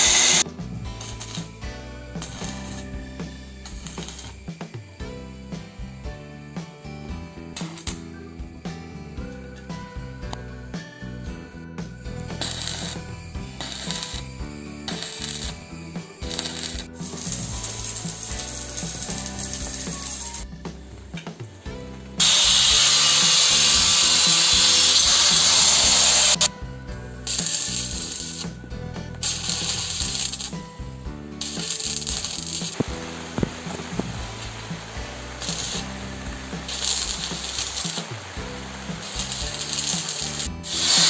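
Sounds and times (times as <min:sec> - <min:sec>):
angle grinder on steel: 0:00.0 - 0:00.4, 0:01.0 - 0:01.5, 0:03.6 - 0:04.4, 0:12.4 - 0:14.3, 0:14.9 - 0:15.6, 0:16.2 - 0:20.4, 0:22.2 - 0:26.5, 0:27.3 - 0:28.6, 0:29.2 - 0:30.6, 0:31.4 - 0:41.0
background music: 0:00.0 - 0:41.0.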